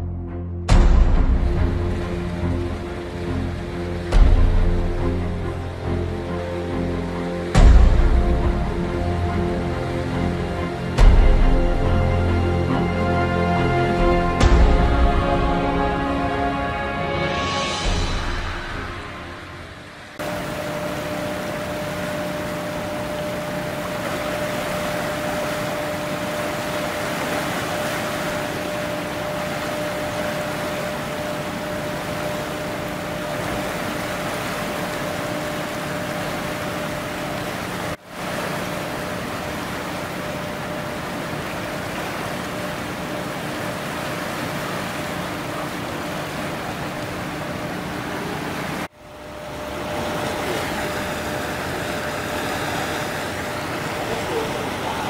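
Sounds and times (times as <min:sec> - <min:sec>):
turbulent river water rushing: 0:00.7 - 0:55.0
faint steady hum: 0:18.6 - 0:55.0.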